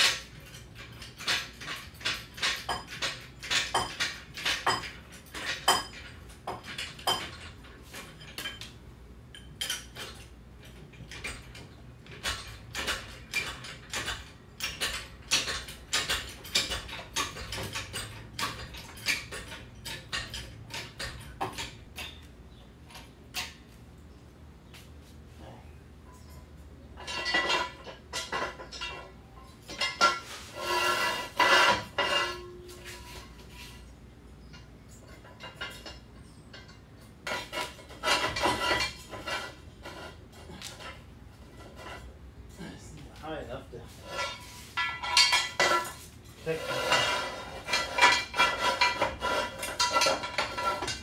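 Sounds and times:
metallic clinks of floor jack: 0:00.0 - 0:22.3, 0:34.5 - 0:42.1, 0:44.0 - 0:51.0.

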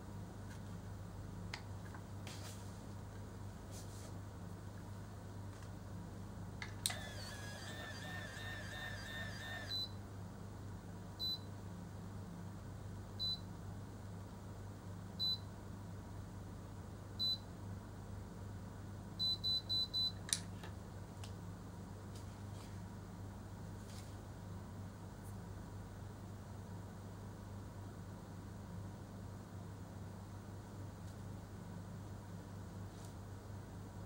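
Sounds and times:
hair curler motor whirring: 0:06.8 - 0:09.8
hair curler beeps: 0:06.9 - 0:09.9.

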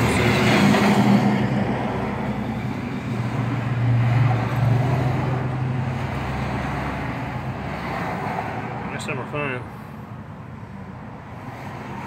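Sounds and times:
vehicle engine hum: 0:00.0 - 0:12.0.

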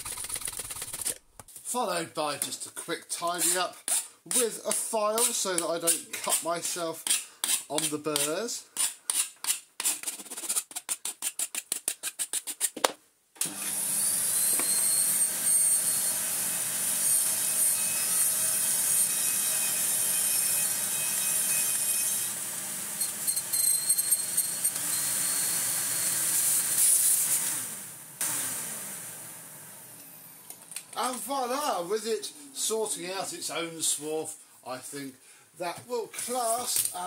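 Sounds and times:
metal file rasping on metal: 0:03.3 - 0:12.7
vacuum cleaner running: 0:13.4 - 0:17.0, 0:24.7 - 0:30.2.

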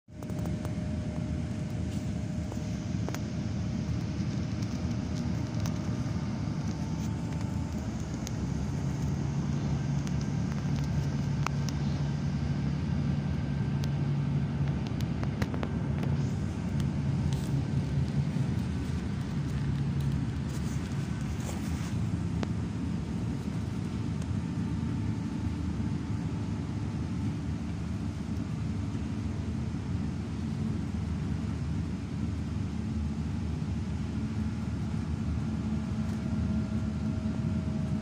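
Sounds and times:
faint clicks and rattles: 0:00.1 - 0:11.9
engine drone: 0:00.1 - 0:38.0
tyre and engine rumble: 0:00.1 - 0:38.0.

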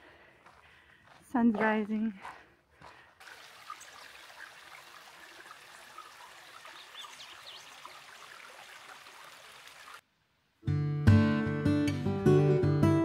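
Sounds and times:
running water: 0:03.2 - 0:10.0
bird chirps: 0:05.8 - 0:08.0.

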